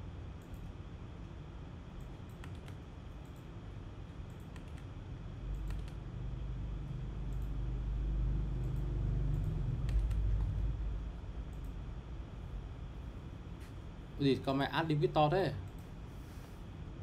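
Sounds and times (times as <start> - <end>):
keyboard and mouse clicks: 2.0 - 3.5, 4.3 - 4.9, 5.5 - 6.0, 8.6 - 10.7.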